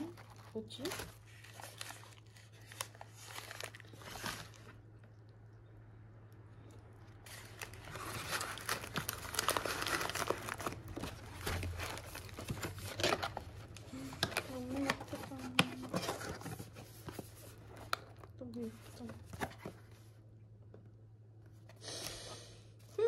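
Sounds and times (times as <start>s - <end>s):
paper and plastic rustling: 0.0s - 5.1s, 7.2s - 20.2s.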